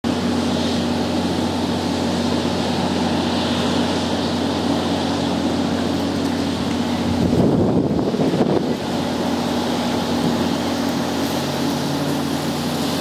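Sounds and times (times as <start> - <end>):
floodwater rushing: 0.1 - 13.0.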